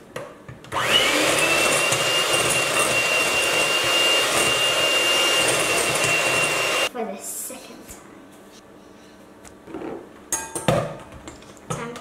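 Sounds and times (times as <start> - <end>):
electric hand mixer whining: 0.7 - 6.9.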